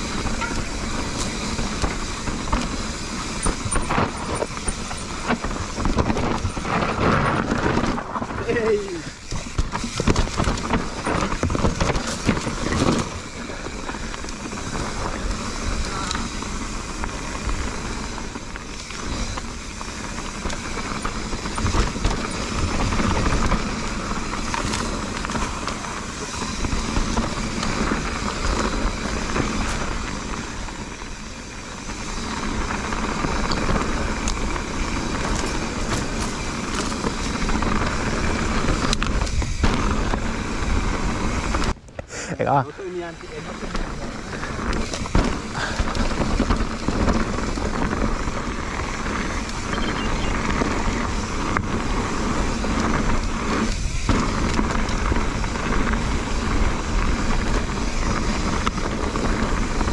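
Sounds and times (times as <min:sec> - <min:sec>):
wind on microphone: 0:00.0 - 0:31.3, 0:43.3 - 0:59.9
bike knocks and rattles: 0:00.0 - 0:41.9, 0:43.2 - 0:59.9
bike tyres rolling over dirt: 0:00.0 - 0:59.9.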